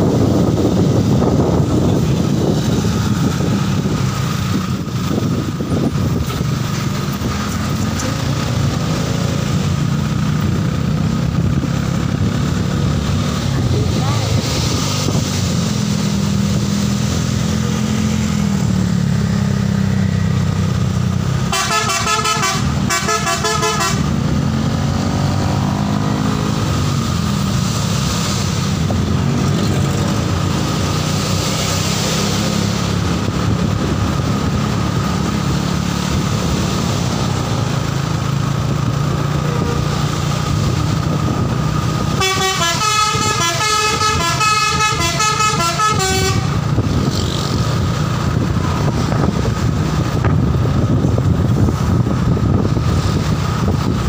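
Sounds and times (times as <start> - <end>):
engine drone: 0.0 - 54.0
bus horn playing melodies: 21.4 - 24.3, 42.0 - 46.8.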